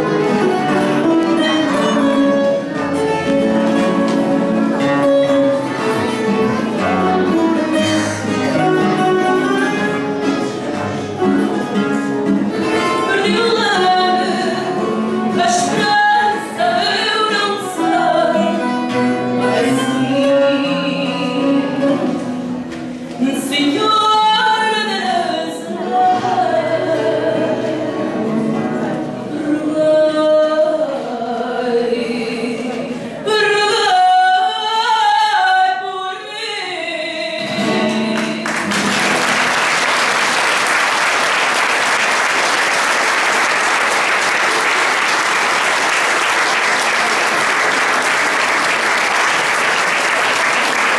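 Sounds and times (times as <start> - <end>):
guitars playing: 0.0 - 29.8, 37.2 - 41.7
woman singing: 12.6 - 22.4, 23.2 - 38.7
audience applause: 38.2 - 50.9.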